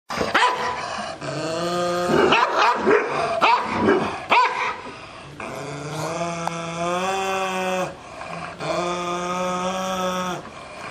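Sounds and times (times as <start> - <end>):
dog growling: 0.1 - 10.9
dog barking: 0.3 - 0.8, 2.3 - 4.8.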